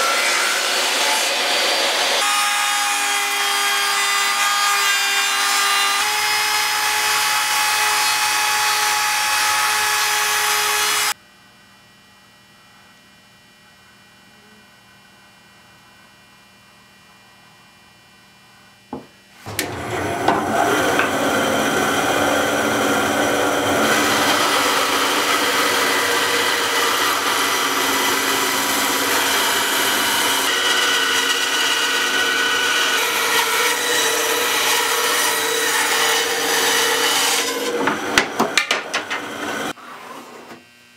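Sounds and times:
band saw cutting wood: 0:00.0 - 0:11.2, 0:19.5 - 0:40.3
trim router cutting wood: 0:00.0 - 0:11.2, 0:19.5 - 0:39.8.

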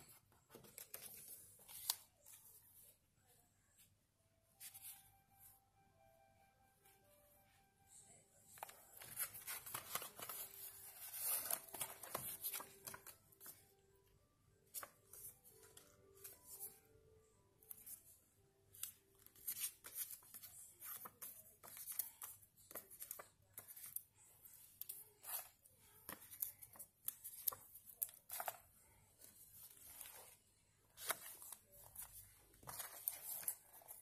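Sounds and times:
faint background music: 0:00.0 - 0:34.0
paper rustling and sliding: 0:08.6 - 0:13.5.

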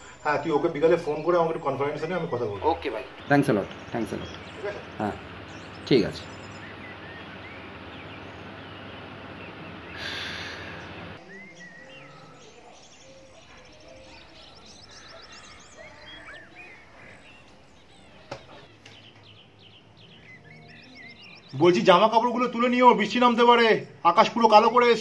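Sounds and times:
small birds chirping and whistling: 0:00.0 - 0:24.0
steady hiss: 0:03.4 - 0:11.2.

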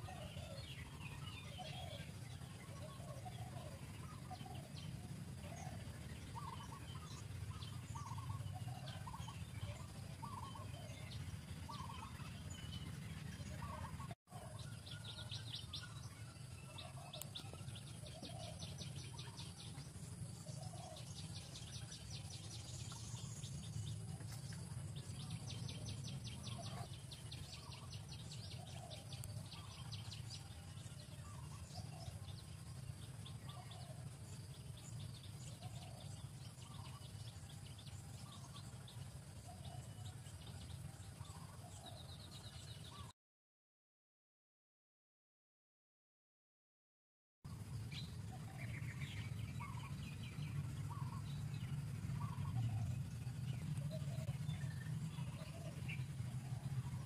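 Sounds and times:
bird rapid high trills: 0:00.0 - 0:42.0
steady low hum: 0:00.0 - 0:43.1, 0:47.5 - 0:57.0.

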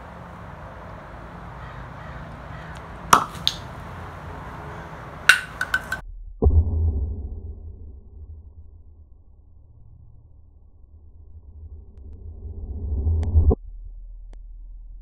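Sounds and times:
canister rocket pop: 0:05.3 - 0:06.0
plastic canister clacking on concrete: 0:05.3 - 0:06.0.

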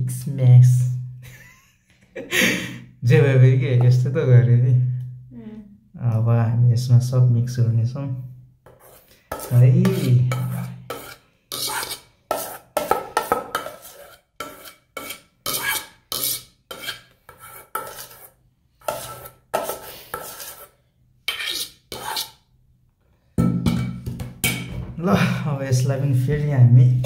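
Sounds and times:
utensil scraping and knocking bowl: 0:08.6 - 0:22.5, 0:23.4 - 0:24.9.

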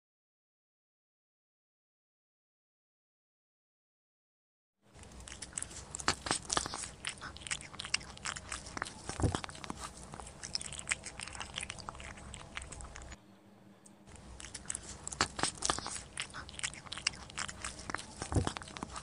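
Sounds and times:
cat crunching dry biscuits: 0:04.9 - 0:13.2, 0:14.1 - 0:19.0.

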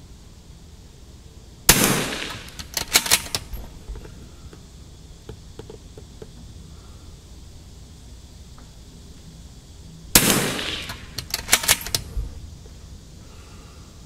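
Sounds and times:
rifle shot: 0:01.7 - 0:03.8, 0:10.1 - 0:12.1
rapid sharp clicks: 0:01.7 - 0:04.1, 0:10.2 - 0:12.1.

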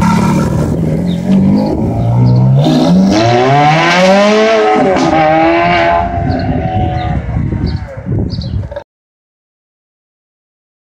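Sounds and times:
sports car accelerating hard: 0:00.0 - 0:07.4.

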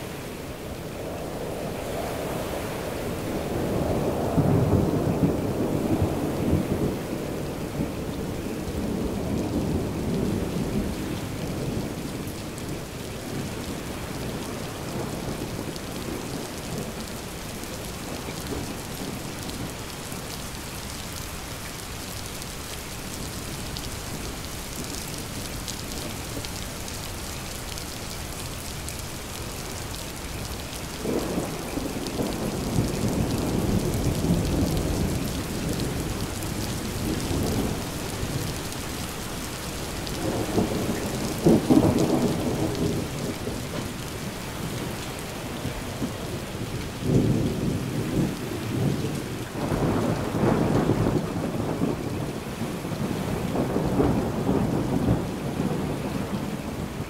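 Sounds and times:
steady rain falling: 0:00.0 - 0:57.0
rolling thunder rumble: 0:01.1 - 0:19.8, 0:31.0 - 0:39.0, 0:40.1 - 0:57.0.

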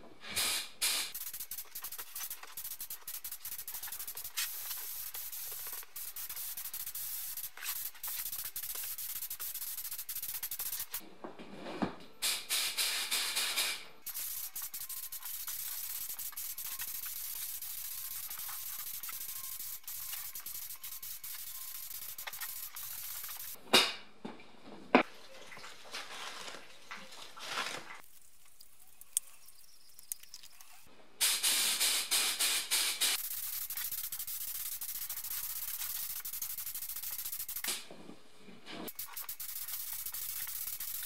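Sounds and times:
paint spray gun hissing: 0:00.3 - 0:11.0, 0:12.2 - 0:23.6, 0:31.2 - 0:37.8, 0:38.9 - 0:41.0.

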